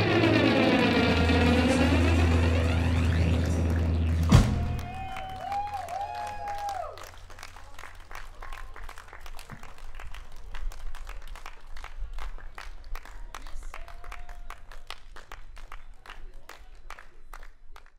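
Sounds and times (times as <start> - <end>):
band holding last note: 0.0 - 5.8
audience clapping: 0.0 - 17.9.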